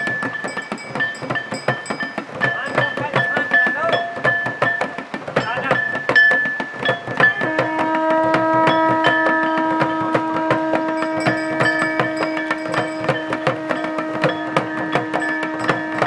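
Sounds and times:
clanging percussion: 0.0 - 16.0
fast drum beats: 0.0 - 16.0
conch shell long note: 7.2 - 16.0.

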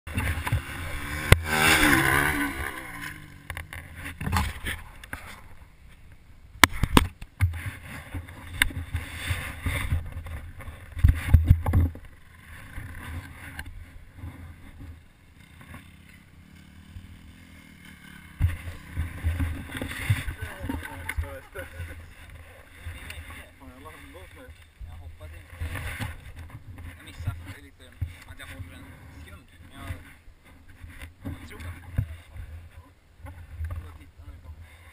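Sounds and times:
motorbike engine revving: 0.1 - 5.6, 7.6 - 27.5
low rumbling bumps: 18.2 - 34.0.

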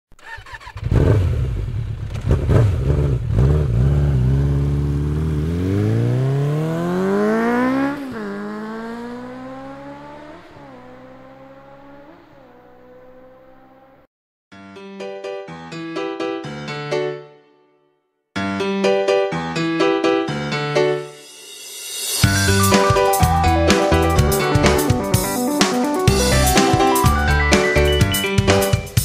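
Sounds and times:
vehicle engine revving and accelerating: 0.5 - 14.1.

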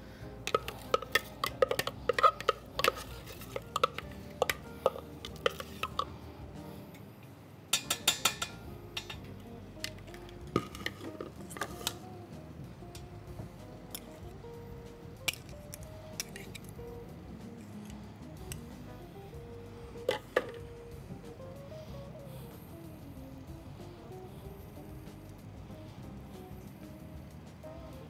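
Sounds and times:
quiet background music: 0.0 - 28.0
utensil clinking against dish: 0.5 - 6.1, 7.7 - 9.3.

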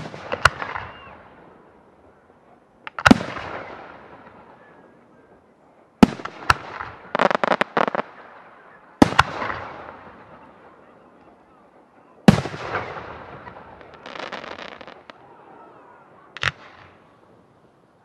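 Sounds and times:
crackling firework reports: 0.0 - 2.2, 2.8 - 18.0
firework shells bursting: 6.1 - 8.1.

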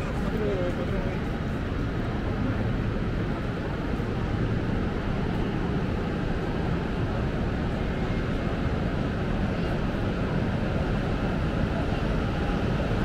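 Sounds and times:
railway station ambience rumble: 0.0 - 13.0.

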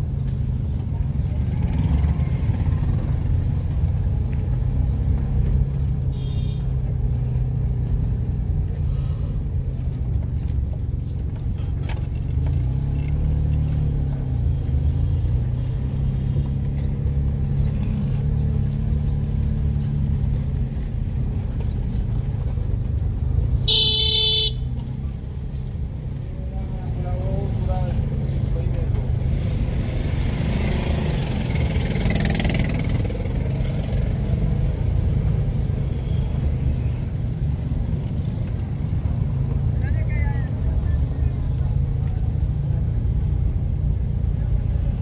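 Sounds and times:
traffic engine rumble: 0.0 - 45.0
vehicle horn blast: 6.1 - 6.7, 23.7 - 24.8.

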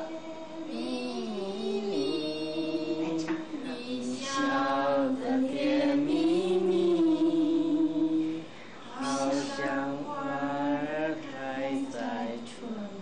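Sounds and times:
women singing slow melody: 0.0 - 13.0.

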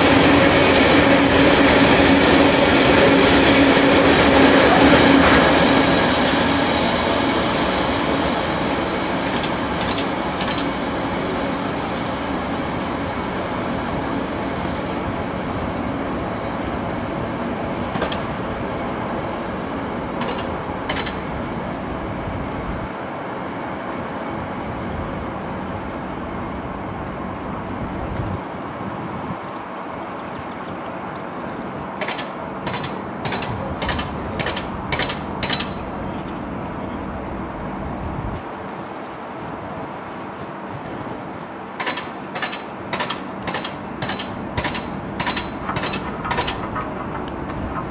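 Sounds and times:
train running noise: 0.0 - 47.9
wheels clicking over track: 8.8 - 10.9, 17.9 - 18.5, 20.2 - 21.4, 32.0 - 36.5, 40.8 - 47.9.

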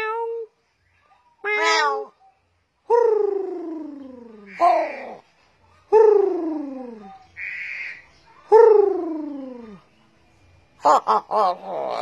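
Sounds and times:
crow calling: 4.2 - 5.2, 7.0 - 8.1
crow harsh rasp: 7.4 - 8.0.

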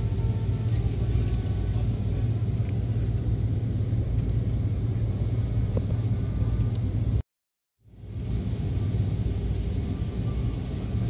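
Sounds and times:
airplane cabin low rumble: 0.0 - 7.2, 7.9 - 11.0
faint high whining tones: 8.4 - 11.0.

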